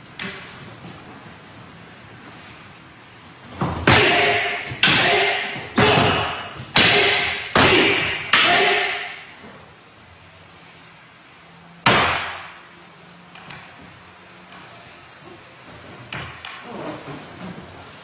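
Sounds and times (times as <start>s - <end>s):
wooden staff and sword clacking: 3.6s - 9.3s, 11.8s - 12.7s.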